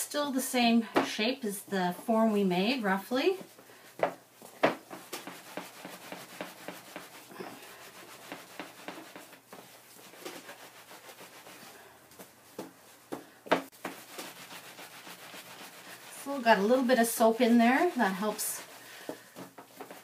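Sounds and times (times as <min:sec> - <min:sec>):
wet felt scrubbing on rubber mat: 0:04.6 - 0:12.7, 0:13.7 - 0:20.0.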